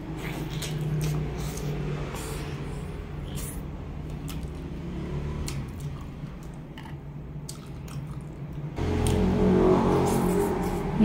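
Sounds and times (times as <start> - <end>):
wet chewing: 0.1 - 2.5, 3.2 - 9.2
lip and teeth clicks: 0.2 - 2.5, 3.2 - 4.7, 5.4 - 9.2
low drone: 8.8 - 11.0.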